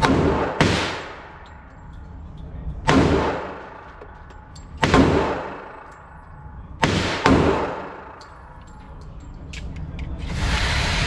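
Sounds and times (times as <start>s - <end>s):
pistol shots echoing indoors: 0.0s - 1.5s, 2.8s - 6.2s, 6.8s - 8.6s.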